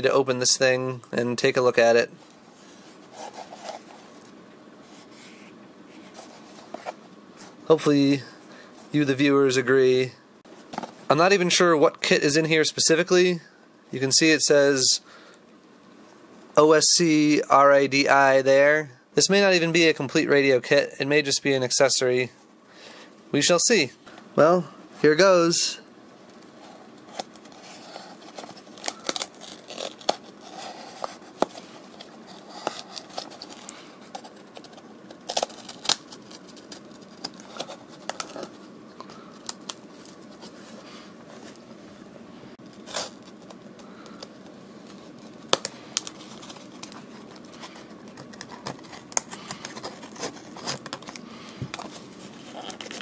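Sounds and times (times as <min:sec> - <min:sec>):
paper and cardboard tearing: 0:27.1 - 0:38.5.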